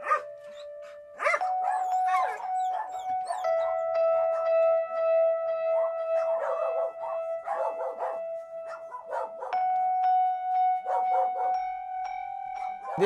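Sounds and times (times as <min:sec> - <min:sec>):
dogs barking: 0:00.0 - 0:04.9, 0:05.7 - 0:11.8, 0:12.5 - 0:13.0
background music: 0:00.0 - 0:13.0.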